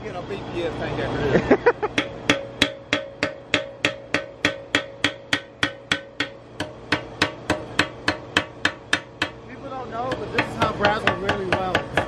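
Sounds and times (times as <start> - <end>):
hammer tapping metal tank: 1.9 - 9.4, 10.0 - 12.0.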